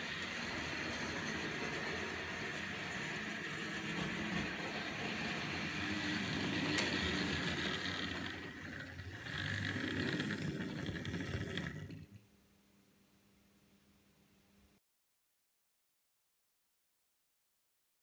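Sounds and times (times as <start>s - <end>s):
model train motor whirring: 0.0s - 12.1s
wheels clattering over track: 0.0s - 12.1s.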